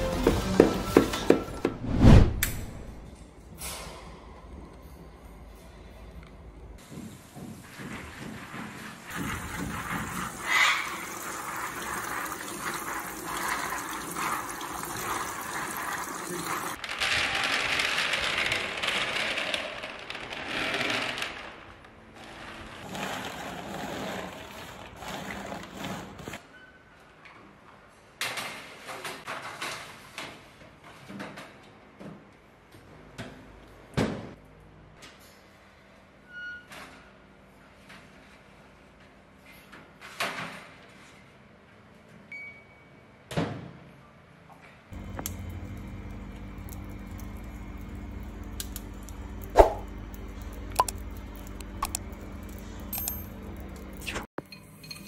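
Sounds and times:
tap water running: 9.1 - 16.8.

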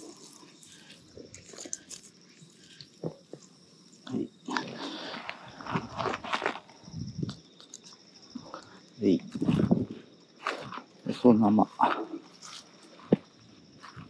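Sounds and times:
rustling and crunching on grass: 4.5 - 7.4.

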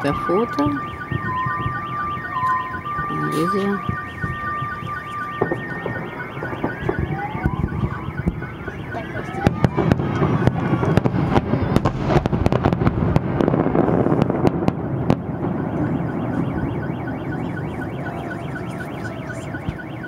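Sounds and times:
fireworks bangs and crackles: 0.0 - 20.0
faint electronic beeping: 15.6 - 20.0.

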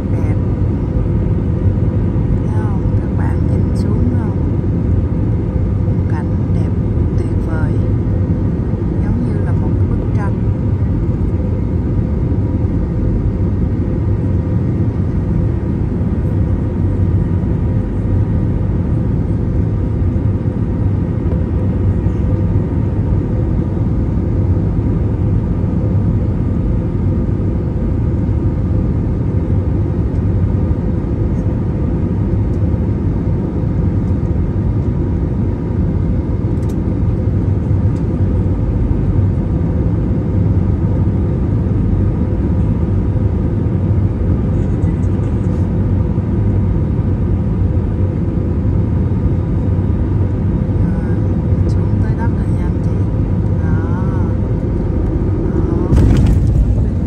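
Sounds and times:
faint steady whine: 0.0 - 57.0
jet engine rumble: 0.0 - 57.0
rushing air: 54.6 - 57.0.

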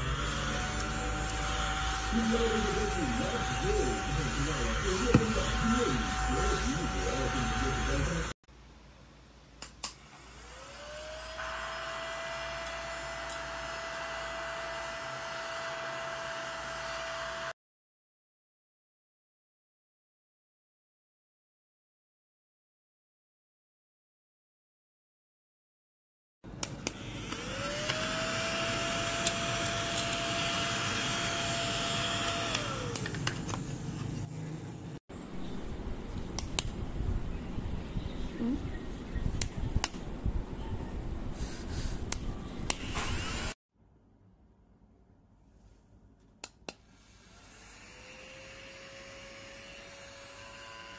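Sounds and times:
mini vacuum cleaner motor whirring: 0.0 - 8.4, 9.9 - 17.6, 26.8 - 33.6, 42.7 - 43.6, 46.9 - 50.9.

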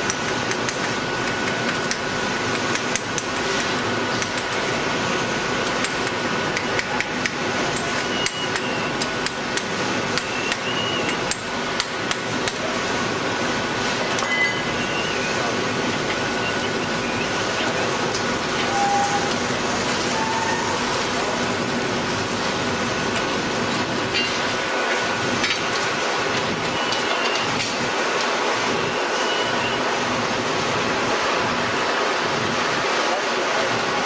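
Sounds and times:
spring winding machine noise: 14.1 - 21.1
sharp metallic clinks: 14.2 - 14.9.

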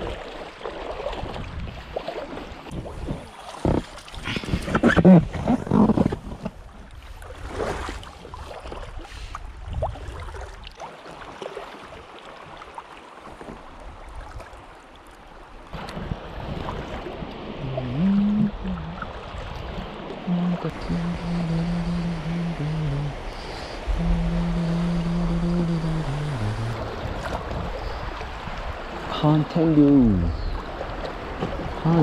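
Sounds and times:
paddle knocks and splashes: 0.0 - 14.7, 15.6 - 17.9, 26.8 - 29.2, 30.6 - 32.0
water washing around raft: 0.0 - 32.0
wind buffeting microphone: 1.1 - 2.0, 2.6 - 6.7, 23.0 - 29.1.

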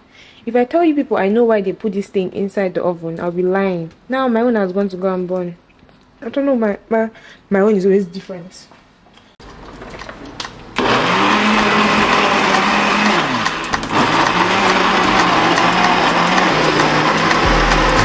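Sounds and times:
kitchen blender running: 10.7 - 18.0.

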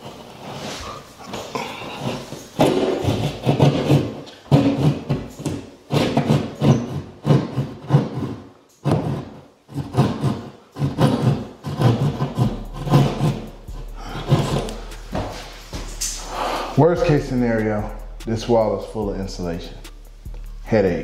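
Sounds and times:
hand saw rasping through drywall: 2.0 - 17.3.

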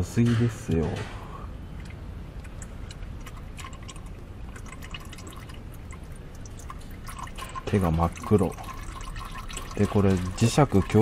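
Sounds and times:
oil pouring into a drain pan: 3.2 - 11.0.

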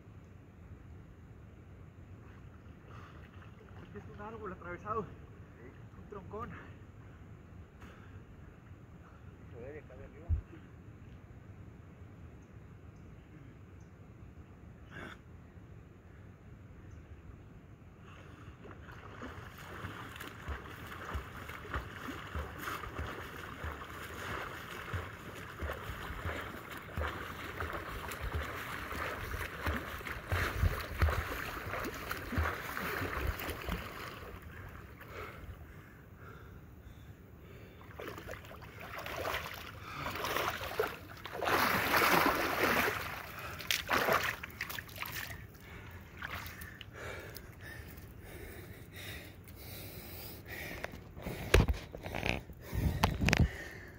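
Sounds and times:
water lapping and splashing: 2.3 - 4.3, 18.0 - 35.7, 37.6 - 48.6
swimmer splashing: 18.6 - 35.1, 37.8 - 45.5.

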